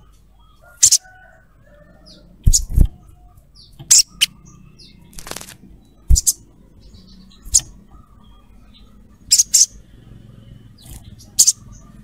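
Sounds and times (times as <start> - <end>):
bird giving sharp high chips: 6.1 - 6.4.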